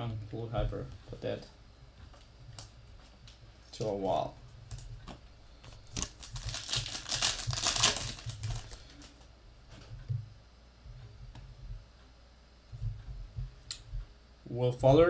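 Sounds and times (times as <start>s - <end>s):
foil wrapper crinkling: 5.6s - 9.3s.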